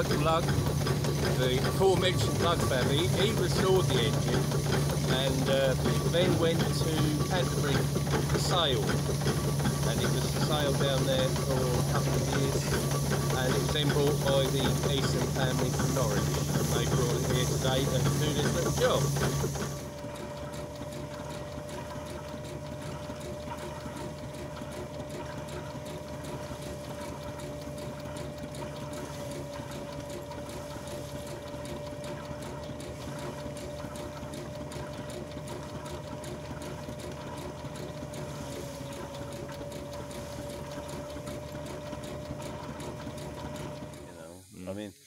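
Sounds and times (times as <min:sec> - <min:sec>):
machinery clattering: 0:00.0 - 0:44.3
threshing machine humming: 0:00.0 - 0:44.5.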